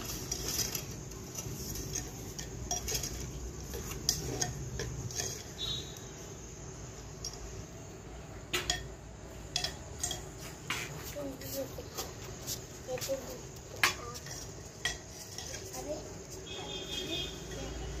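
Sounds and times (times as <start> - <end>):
ladle scraping and knocking pot: 0.0 - 6.1, 8.5 - 11.0, 13.6 - 16.6.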